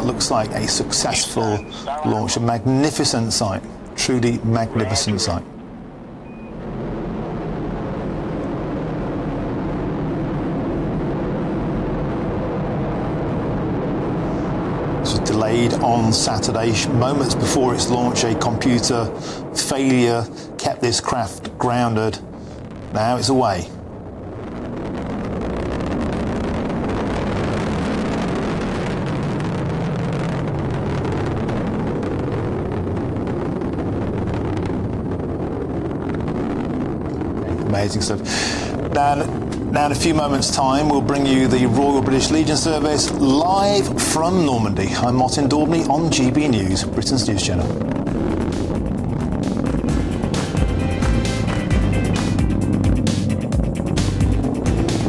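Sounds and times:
rocket engine rumble: 0.0s - 55.0s.

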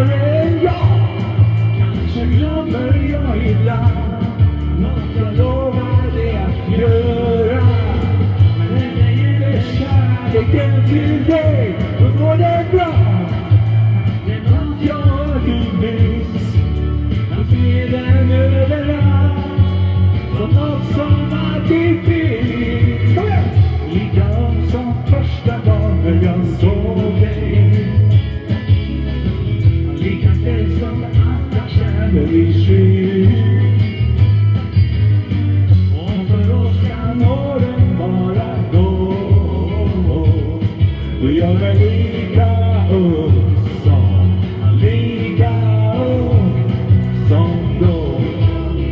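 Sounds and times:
bass guitar: 0.0s - 48.9s
bending lead melody: 0.0s - 48.9s
drum beat: 0.0s - 48.9s
electric guitars: 0.0s - 48.9s.

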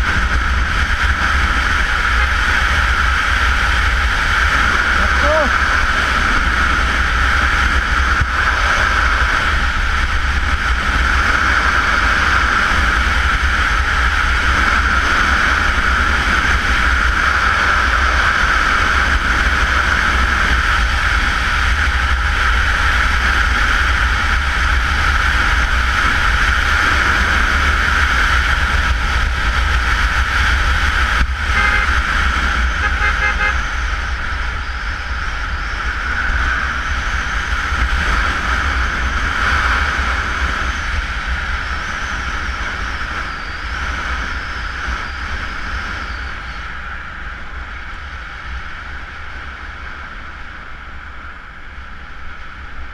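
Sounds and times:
motorcycle engine running: 0.0s - 45.4s
wind rush over microphone: 0.0s - 52.9s
vehicle horn tooting: 31.5s - 33.7s.

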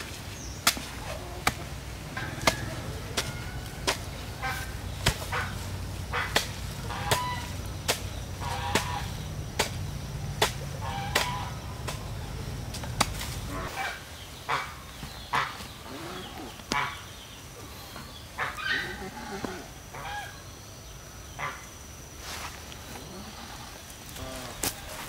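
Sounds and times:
sharp strikes on bamboo: 0.0s - 13.5s
chickens clucking: 1.0s - 20.4s.

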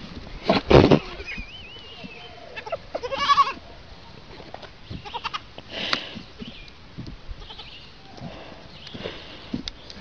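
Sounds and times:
young goats bleating: 0.8s - 3.7s, 4.9s - 5.5s, 7.4s - 8.2s.

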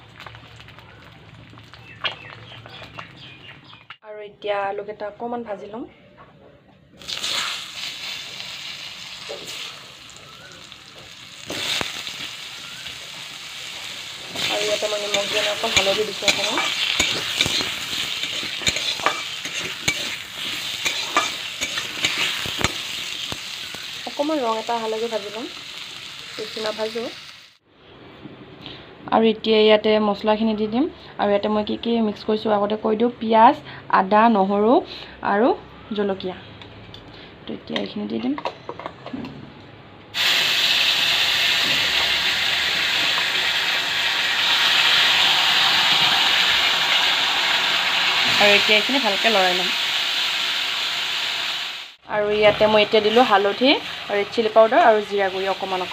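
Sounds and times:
potato wedges sizzling in oil: 7.0s - 27.6s, 40.2s - 55.9s.

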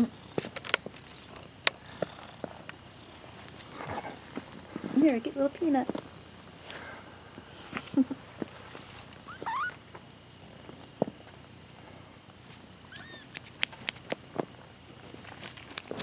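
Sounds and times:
kittens mewing: 9.2s - 9.8s, 12.9s - 13.7s
kitten high chirp: 9.3s - 9.8s, 12.9s - 13.5s
clicks and rustles of handling: 12.5s - 16.0s.

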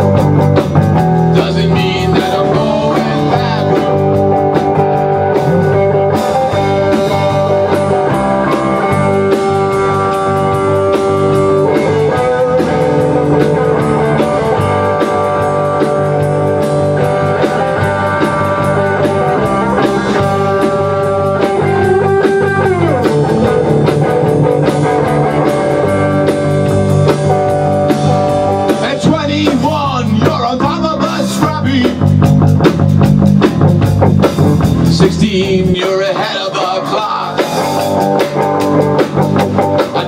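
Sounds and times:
drum kit: 0.0s - 40.0s
electric guitars playing: 0.0s - 40.0s
guitar sliding and bending notes: 0.0s - 40.0s.

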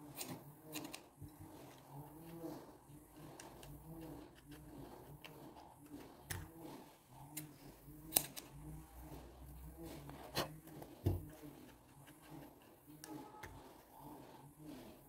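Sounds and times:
wire brush clicking and scraping: 0.0s - 2.5s, 3.1s - 9.2s.

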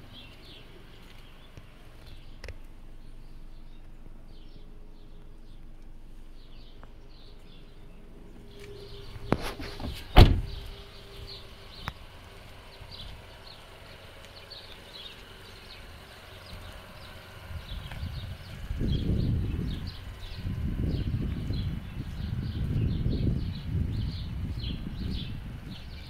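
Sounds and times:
car door opening click: 8.6s - 10.7s
car door slamming: 9.1s - 10.8s.

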